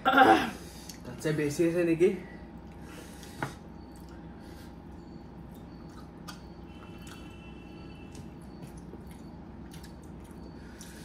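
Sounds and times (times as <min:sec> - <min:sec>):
steady low hum: 0:00.0 - 0:11.0
person chewing wetly: 0:03.8 - 0:04.3, 0:04.9 - 0:11.0.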